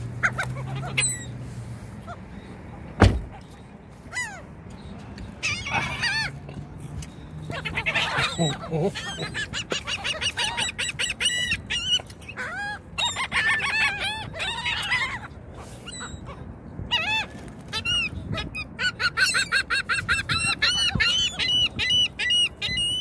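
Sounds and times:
gulls calling: 0.0 - 23.0.

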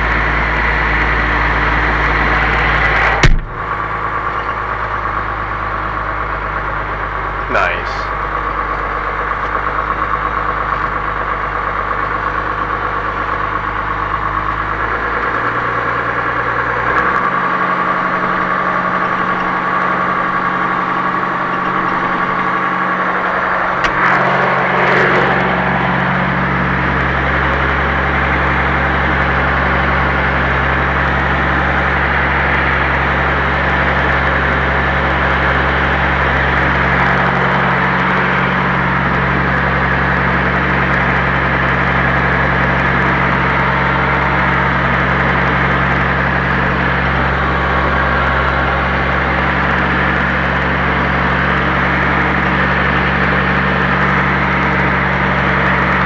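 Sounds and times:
tractor diesel engine running: 0.0 - 56.0
brief loud noise: 23.1 - 28.0.

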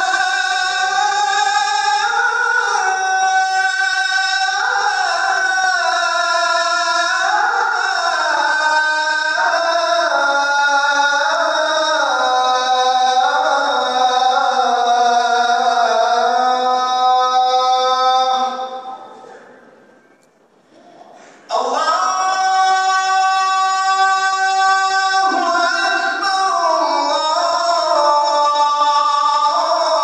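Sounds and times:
person chanting prayer: 0.0 - 19.7, 20.8 - 30.0.

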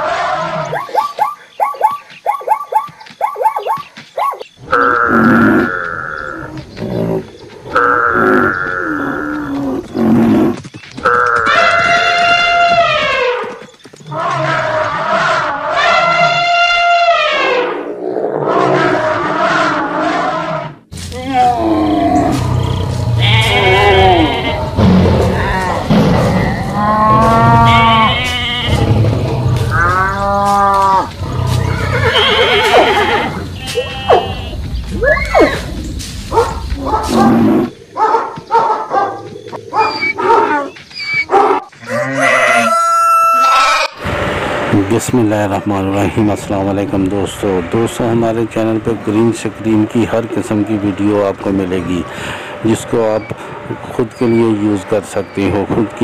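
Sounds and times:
long bleating calls: 23.2 - 25.8, 26.4 - 28.8, 31.8 - 34.6
long lowing animal call: 39.4 - 44.0.

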